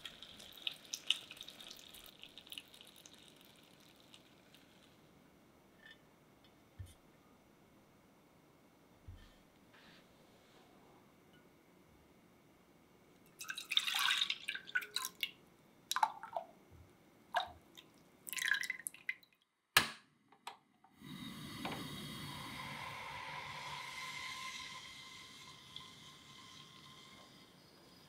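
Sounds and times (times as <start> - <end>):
liquid pouring and splashing: 0.0 - 5.0, 13.4 - 16.5, 17.4 - 19.3
steady hiss of milk in pan: 0.0 - 5.2, 21.0 - 28.0.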